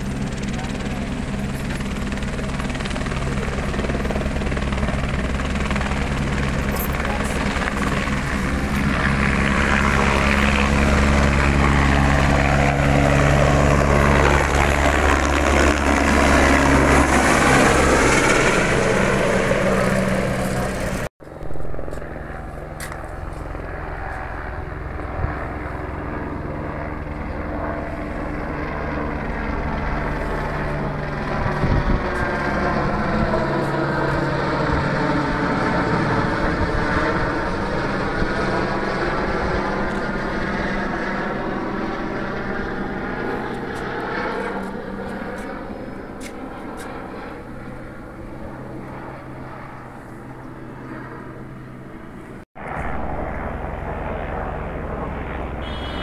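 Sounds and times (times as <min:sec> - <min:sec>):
helicopter rotor and engine drone: 0:00.0 - 0:56.0.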